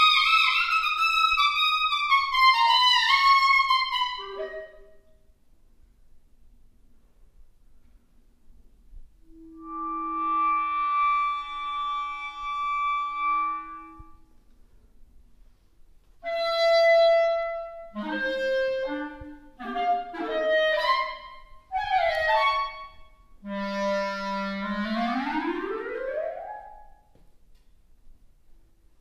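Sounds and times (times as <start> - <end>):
solo clarinet playing: 0.0 - 5.0, 9.2 - 14.3, 16.2 - 27.0.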